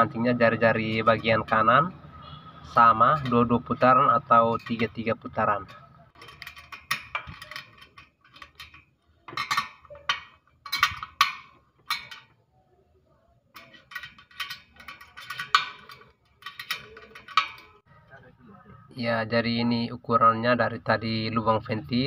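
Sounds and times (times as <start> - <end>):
wrench clinking on metal spokes: 0.0 - 1.9, 2.8 - 12.5, 13.5 - 17.9.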